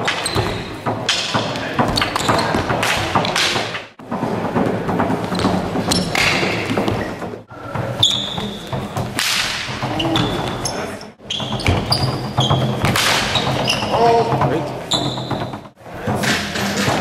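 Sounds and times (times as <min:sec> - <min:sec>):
fighting sticks swishing and clacking: 0:00.0 - 0:10.9, 0:15.1 - 0:17.0.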